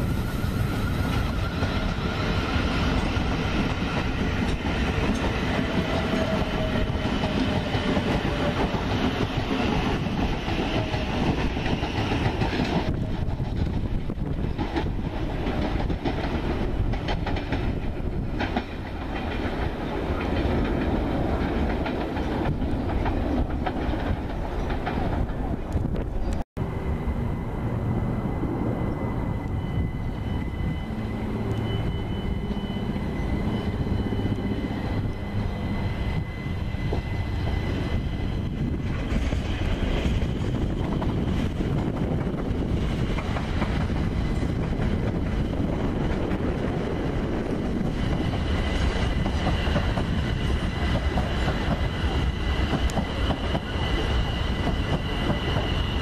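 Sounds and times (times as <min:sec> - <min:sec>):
train wheels rumbling on rails: 0:00.0 - 0:56.0
steady high tone: 0:26.6 - 0:38.9.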